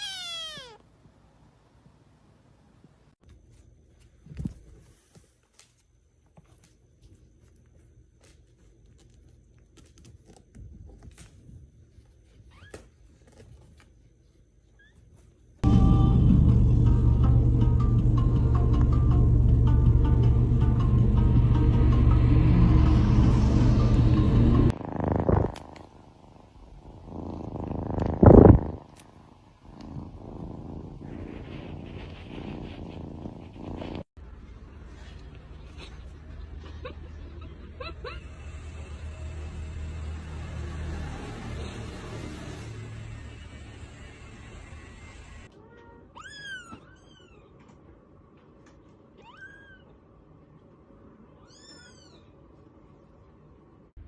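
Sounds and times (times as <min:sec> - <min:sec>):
cat meowing: 0:00.0 - 0:00.8, 0:45.6 - 0:47.5, 0:49.2 - 0:49.9, 0:51.4 - 0:52.3
cat purring: 0:24.3 - 0:34.2.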